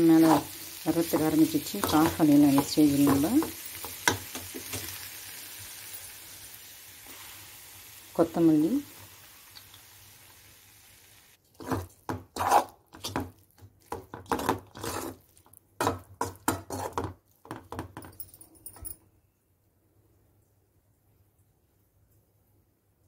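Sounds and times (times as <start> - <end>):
metal spoon scraping a pan: 0.6 - 5.1, 11.5 - 17.6
faint hiss: 4.4 - 11.4.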